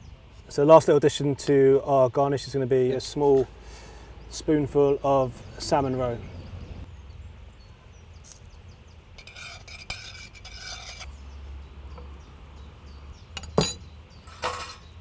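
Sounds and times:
metal spoon scraping a saucepan: 9.2 - 11.2, 13.4 - 15.0.

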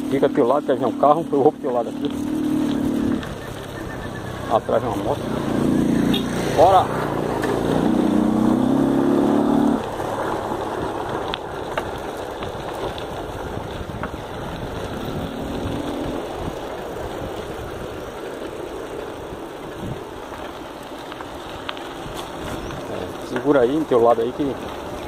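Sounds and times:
motorcycle engine running: 0.0 - 17.9.

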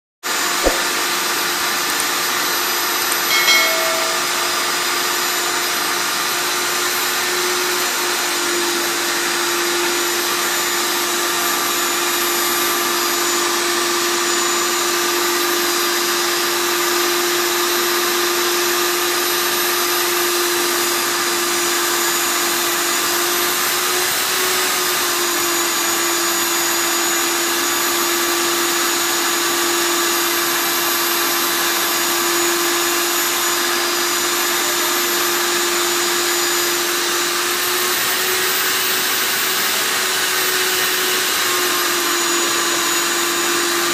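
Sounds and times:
core drill cutting concrete: 18.8 - 43.9.

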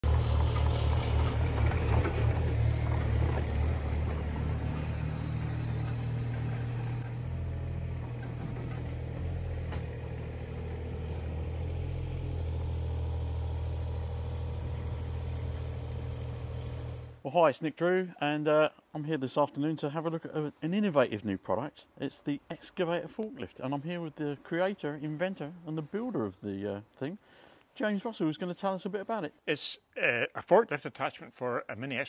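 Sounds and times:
diesel engine running: 0.0 - 17.2.

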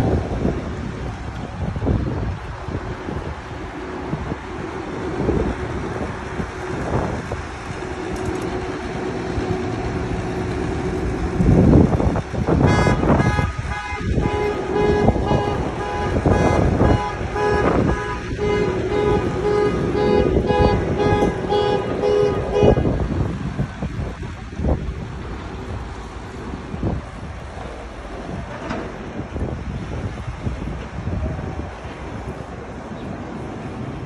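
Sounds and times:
street traffic: 0.0 - 34.0
vehicle horn honking: 12.5 - 23.0.

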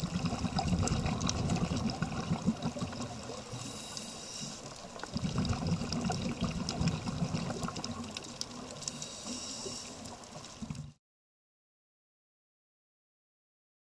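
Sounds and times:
low bubbling rumble underwater: 0.0 - 3.6, 4.9 - 8.8
fine crackling clicks: 7.5 - 10.9.

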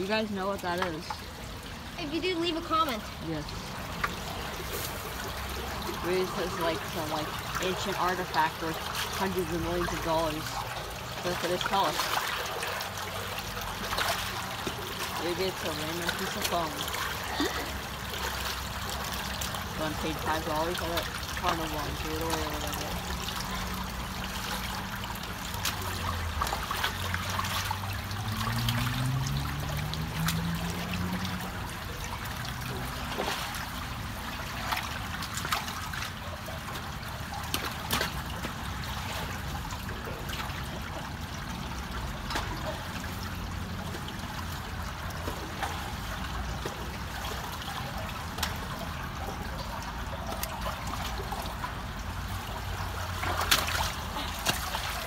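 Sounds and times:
water trickling and gurgling: 0.0 - 55.0
hands splashing in water: 10.7 - 31.7, 52.6 - 55.0.

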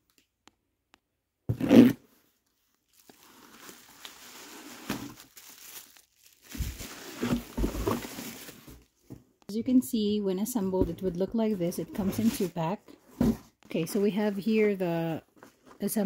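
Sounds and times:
cardboard scraping: 1.5 - 2.1, 6.6 - 8.8, 10.8 - 14.3
bubble wrap crinkling: 2.3 - 8.9
cardboard ripping: 3.0 - 8.8.

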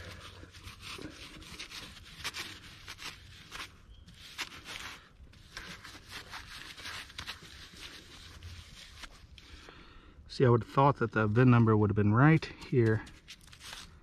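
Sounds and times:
paintbrush scrubbing glass: 0.0 - 9.4.

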